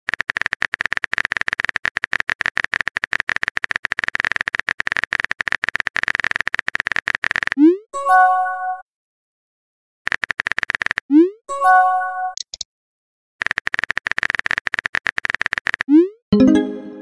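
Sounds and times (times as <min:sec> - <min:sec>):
simulated keyboard typing clicks: 0:00.1 - 0:07.8, 0:10.1 - 0:11.3, 0:12.3 - 0:12.6, 0:13.4 - 0:16.1
bright message chime: 0:16.3 - 0:17.0.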